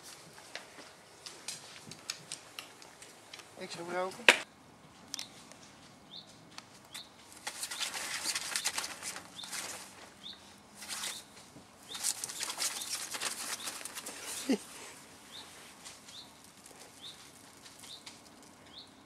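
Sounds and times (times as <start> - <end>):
fabric tunnel rustling and crinkling: 7.3 - 18.5.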